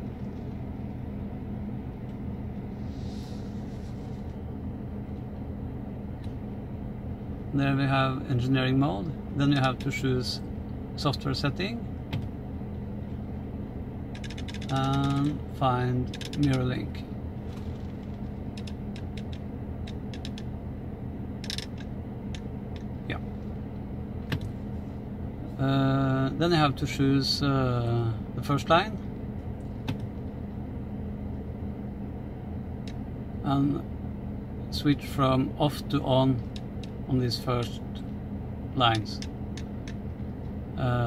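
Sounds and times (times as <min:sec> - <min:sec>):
low car cabin hum: 0:00.0 - 0:41.0
controller clicking: 0:14.2 - 0:15.3.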